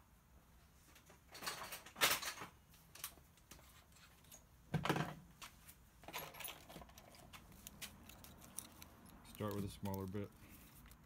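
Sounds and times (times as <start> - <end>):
tools clicking and rattling: 6.0 - 11.0.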